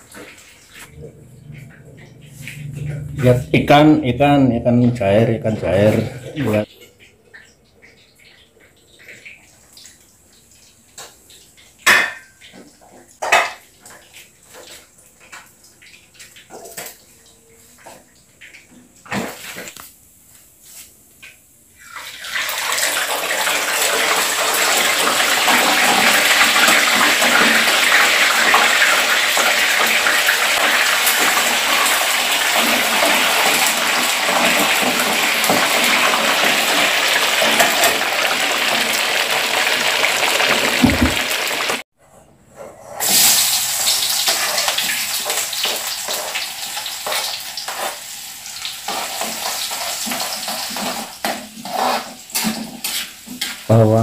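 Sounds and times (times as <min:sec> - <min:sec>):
fish sizzling in hot oil: 0:21.8 - 0:41.8, 0:43.0 - 0:53.7.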